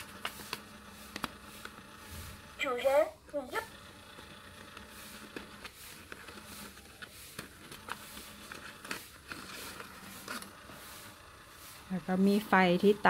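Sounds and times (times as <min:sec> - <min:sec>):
paper banknote crinkling: 0:04.5 - 0:11.9.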